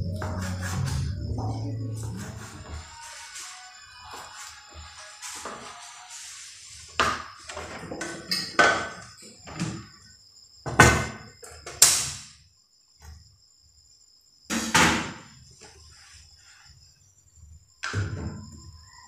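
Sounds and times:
faint high-pitched tone: 0.0 - 6.4.

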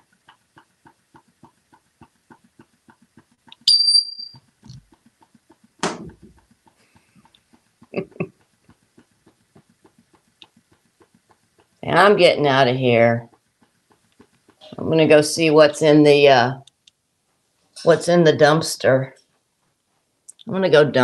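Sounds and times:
faint regular ticking: 0.0 - 17.2
parrot whistle: 3.6 - 4.4.

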